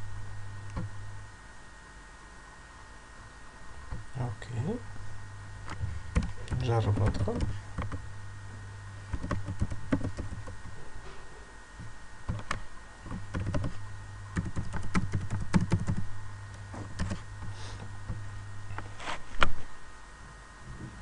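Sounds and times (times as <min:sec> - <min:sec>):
steady low hum: 0:00.0 - 0:21.0
keyboard typing clicks: 0:06.1 - 0:08.0, 0:09.1 - 0:10.6, 0:12.3 - 0:13.7, 0:14.4 - 0:16.0, 0:17.0 - 0:17.2.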